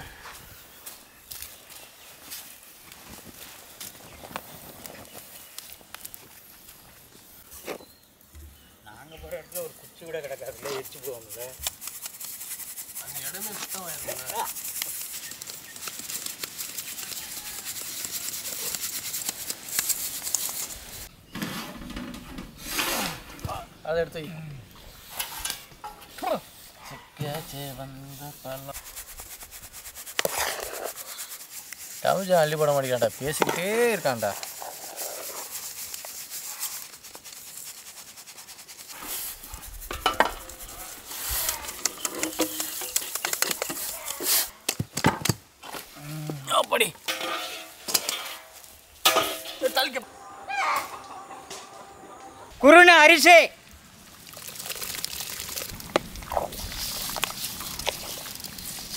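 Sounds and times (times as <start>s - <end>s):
flour sifting through sieve: 10.1s - 21.1s, 27.3s - 44.5s
sieve rims clinking on metal basins: 39.9s - 44.4s, 47.0s - 50.0s.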